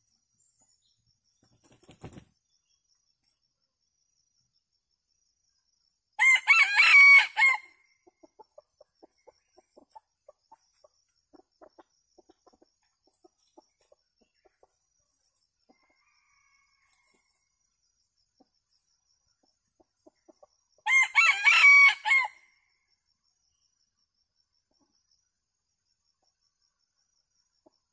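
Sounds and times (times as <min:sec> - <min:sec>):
rooster crowing: 0:06.2 - 0:07.8, 0:15.7 - 0:17.4, 0:20.8 - 0:22.4.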